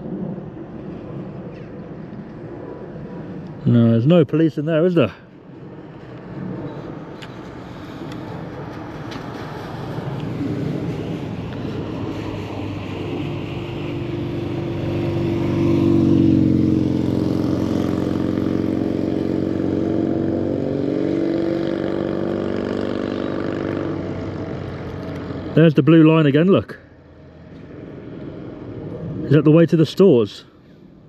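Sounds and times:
vehicle engine running: 6.0 - 29.4.

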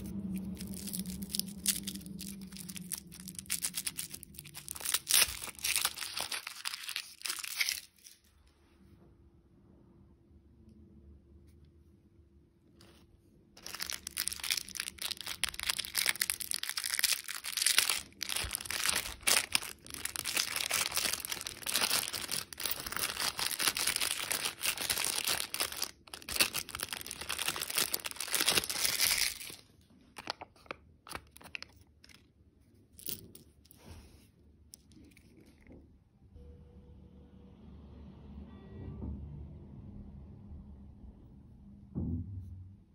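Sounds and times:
plastic wrapper crinkling and tearing: 0.0 - 8.3, 13.6 - 33.6.

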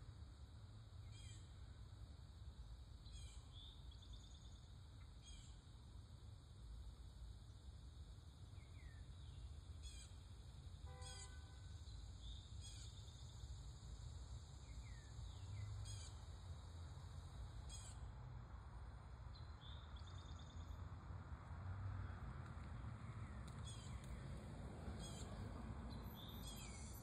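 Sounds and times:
songbirds chirping: 10.9 - 18.1, 19.1 - 21.0, 22.0 - 27.0
distant traffic rumble: 15.1 - 27.0.

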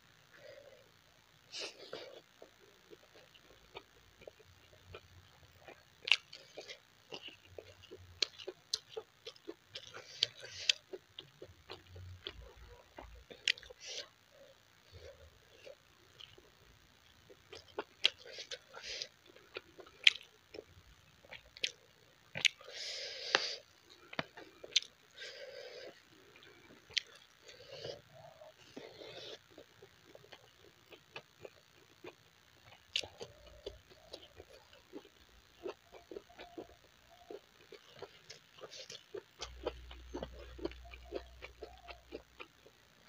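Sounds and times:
wet chewing and mouth smacks: 28.7 - 42.6.

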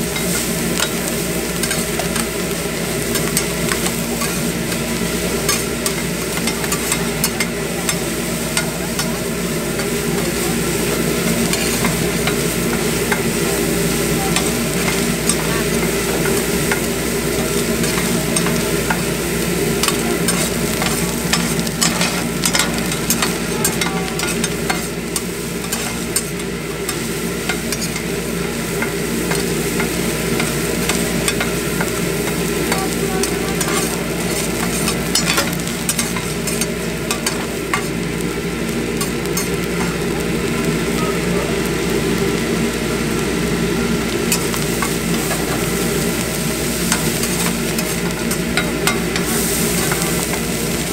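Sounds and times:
rice sizzling on a griddle: 0.0 - 50.9
spatula blades clicking on steel: 0.2 - 2.3, 5.4 - 8.0, 14.3 - 19.0, 19.8 - 28.1, 28.8 - 37.9
metal spatulas scraping: 33.5 - 37.9.

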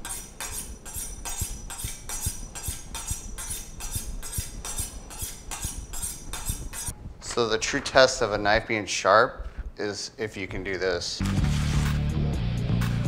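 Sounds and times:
knife scraping on honing steel: 0.0 - 7.0.

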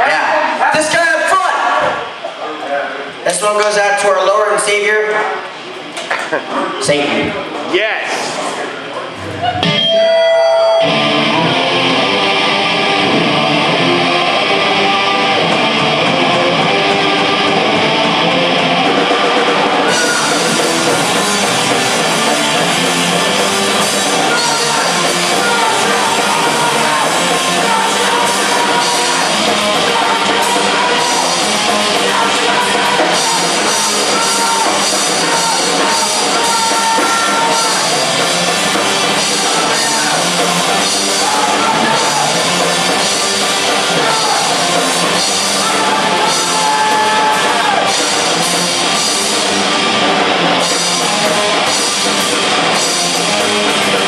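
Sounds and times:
live rock band playing: 9.1 - 54.0
cymbals crashing: 16.5 - 54.0.

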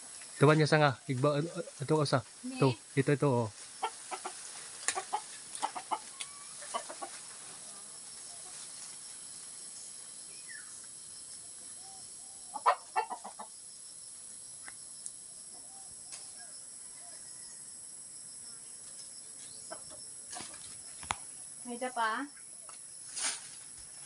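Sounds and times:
chickens clucking: 3.8 - 8.7, 12.5 - 13.6, 19.4 - 20.8.

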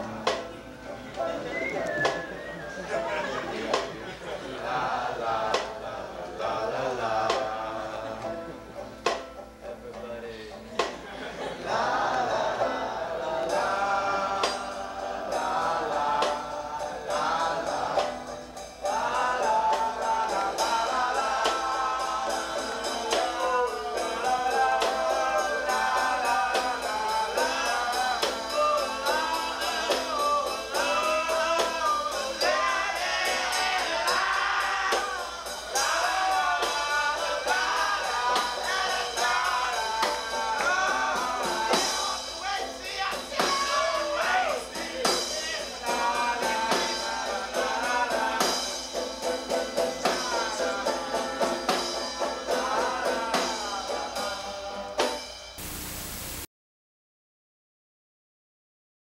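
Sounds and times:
banjo: 0.0 - 55.3
acoustic guitar: 0.0 - 56.5
person singing: 11.6 - 55.2.

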